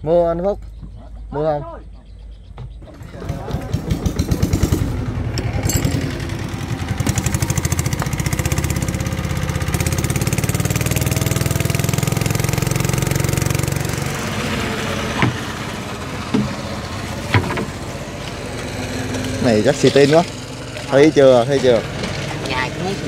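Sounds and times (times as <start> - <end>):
small boat engine running: 2.4 - 23.0
sharp knocks: 15.1 - 15.6, 16.3 - 16.7, 17.3 - 17.8.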